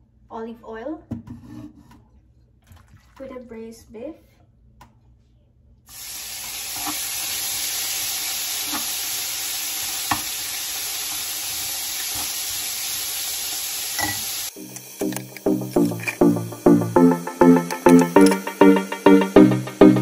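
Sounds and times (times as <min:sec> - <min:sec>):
meat sizzling in a frying pan: 0:05.9 - 0:16.8
music: 0:14.5 - 0:20.0
metal tongs clicking: 0:14.7 - 0:16.4, 0:17.6 - 0:18.5.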